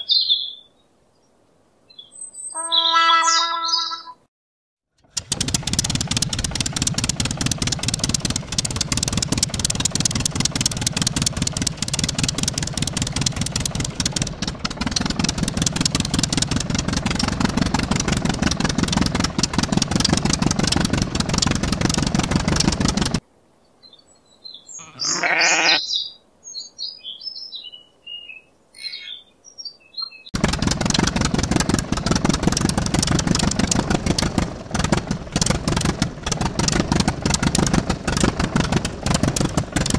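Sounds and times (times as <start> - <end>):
birds chirping: 0.0 - 4.2, 23.5 - 30.4
tractor engine chugging: 4.9 - 23.2, 30.4 - 39.9
sheep bleating: 24.8 - 25.9.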